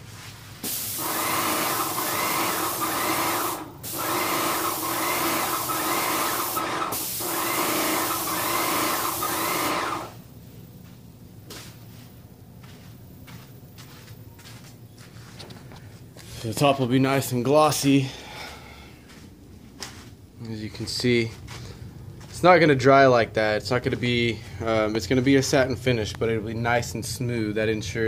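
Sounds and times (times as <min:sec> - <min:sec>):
paint spray gun hissing: 0:00.6 - 0:10.2.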